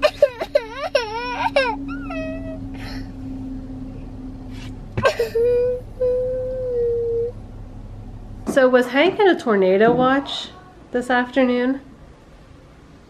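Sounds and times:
toddler girl crying: 0.0s - 3.1s, 5.0s - 7.3s.

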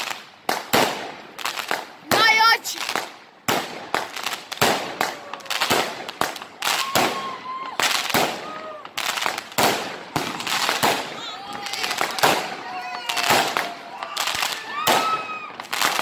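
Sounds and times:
fireworks bangs: 0.0s - 16.0s.

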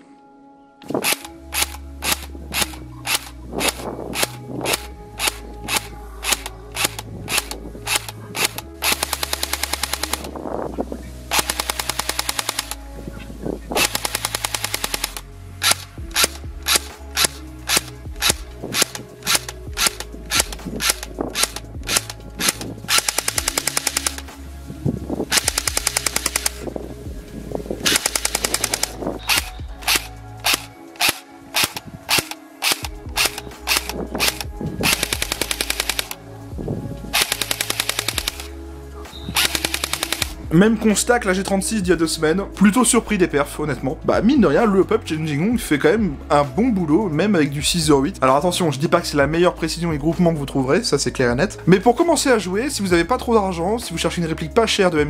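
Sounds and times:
background music: 0.0s - 55.0s
airsoft rifle firing: 1.0s - 10.3s, 11.3s - 12.8s, 13.8s - 24.3s, 25.3s - 26.7s, 27.8s - 36.2s, 37.2s - 38.5s, 39.4s - 40.4s.

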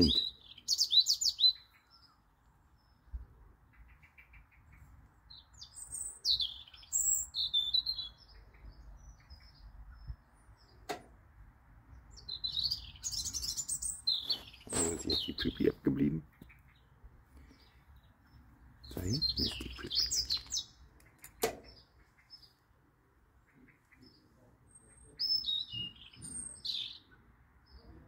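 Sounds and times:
birds chirping and twittering: 0.0s - 28.0s
sharp click: 10.8s - 11.1s, 20.2s - 21.7s.

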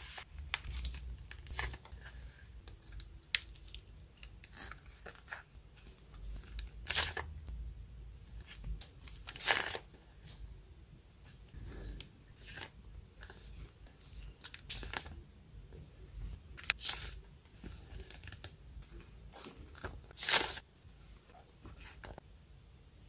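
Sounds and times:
paper sheets rustling: 19.3s - 20.6s.

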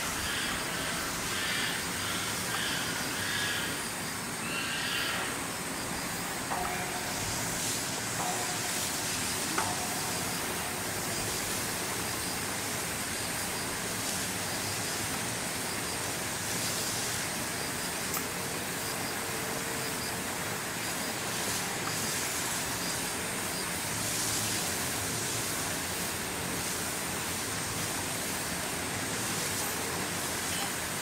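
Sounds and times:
outdoor background hiss: 0.0s - 31.0s.

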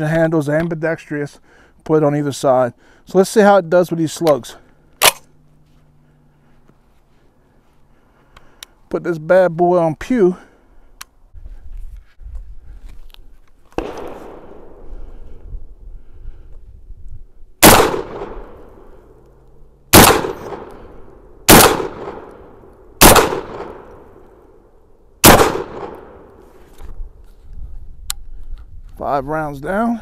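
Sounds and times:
shotgun blasts with ringing tail: 17.6s - 18.9s, 19.9s - 24.1s, 25.2s - 26.4s.

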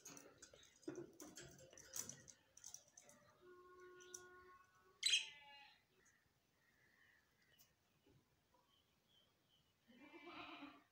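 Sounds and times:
loud bird chirp: 5.0s - 7.8s.

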